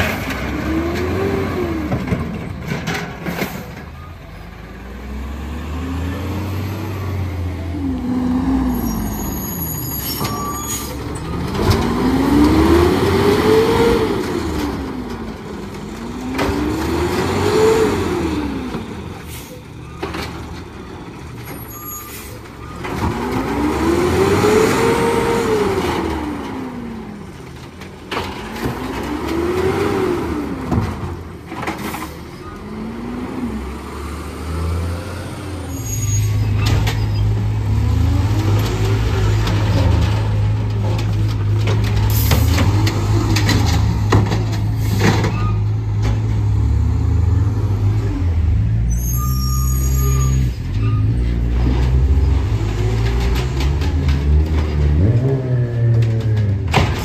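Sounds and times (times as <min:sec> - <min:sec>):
truck engine revving: 0:00.0 - 0:02.3, 0:04.8 - 0:09.7, 0:11.1 - 0:19.2, 0:22.8 - 0:27.4, 0:28.6 - 0:31.2, 0:32.6 - 0:35.8, 0:36.4 - 0:48.8.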